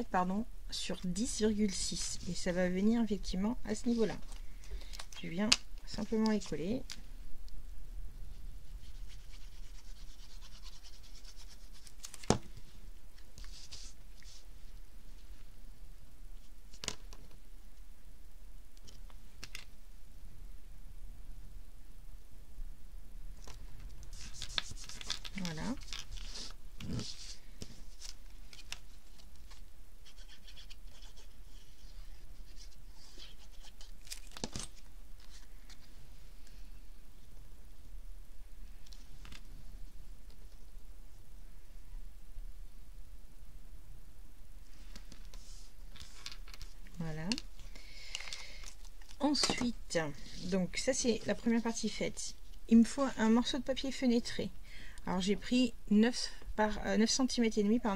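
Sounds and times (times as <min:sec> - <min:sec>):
paper rustling: 0:08.7 - 0:14.8, 0:23.4 - 0:35.9, 0:44.7 - 0:51.6
glue bottle scratching paper: 0:08.8 - 0:11.9, 0:30.0 - 0:31.8.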